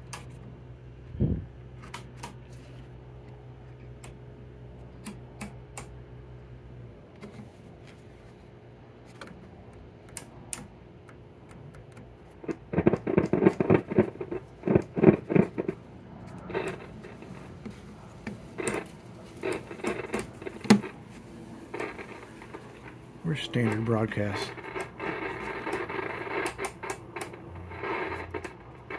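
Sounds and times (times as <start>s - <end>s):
radio speaker hum: 9.5s - 28.9s
radio crackling: 12.2s - 28.9s
sharp clicks: 21.7s - 28.9s.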